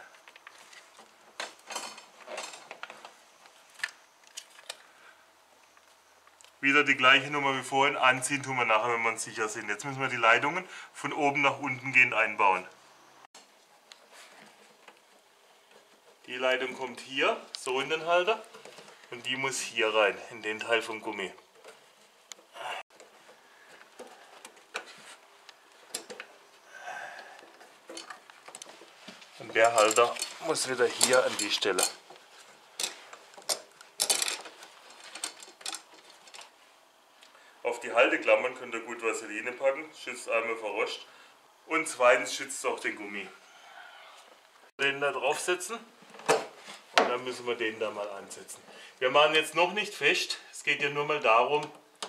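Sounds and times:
hand rustle: 0:27.6 - 0:36.8.

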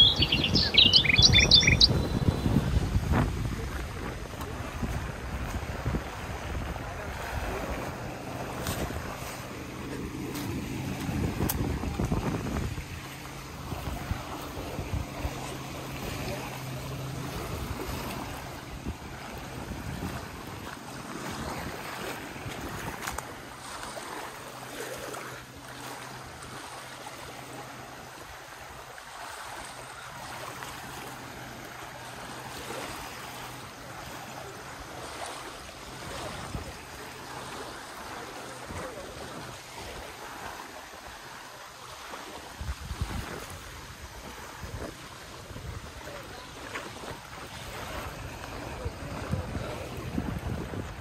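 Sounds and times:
wind on microphone: 0:00.0 - 0:23.4, 0:42.4 - 0:51.0
water lapping: 0:00.0 - 0:51.0.

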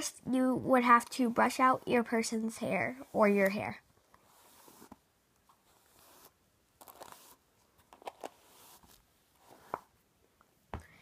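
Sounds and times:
hairbrush swishing through hair: 0:02.9 - 0:03.6, 0:04.2 - 0:05.0.

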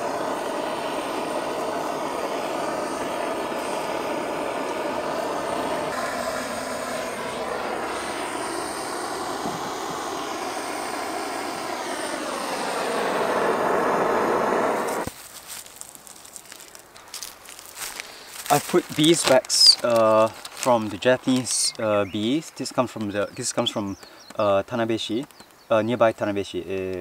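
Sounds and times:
aircraft engine drone: 0:00.0 - 0:15.1, 0:16.2 - 0:24.3.

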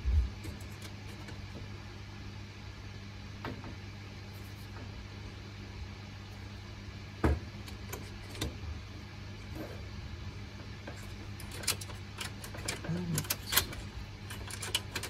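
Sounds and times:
knocks inside server chassis: 0:07.2 - 0:07.5.

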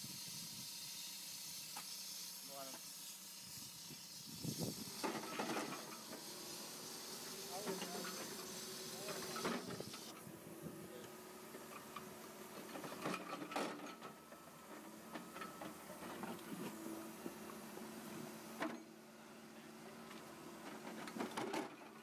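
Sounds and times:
excavator engine running: 0:04.8 - 0:22.0.

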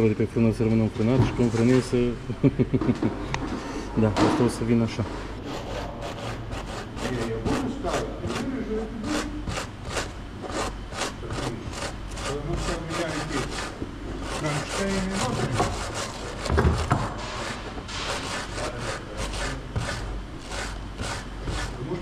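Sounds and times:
rhythmic metal scraping: 0:05.4 - 0:22.0.

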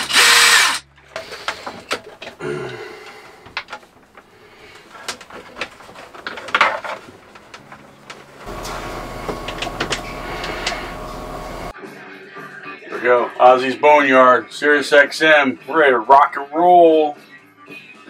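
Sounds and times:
hands clicking and rustling cables: 0:01.1 - 0:11.0
steady electrical hum: 0:03.7 - 0:11.7.

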